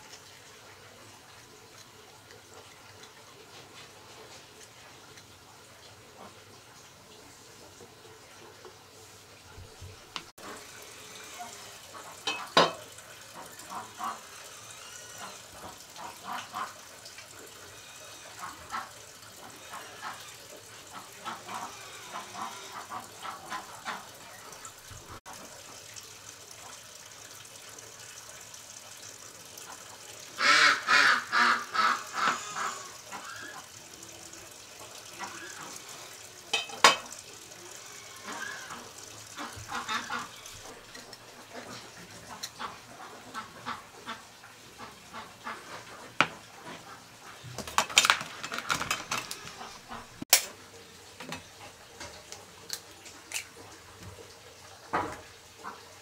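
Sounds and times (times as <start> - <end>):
ducks quacking: 30.4 - 33.6.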